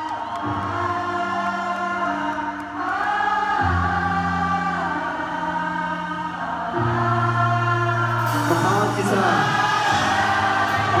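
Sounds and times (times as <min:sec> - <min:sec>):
crowd singing along: 0:00.0 - 0:11.0
live band playing chords: 0:07.0 - 0:11.0.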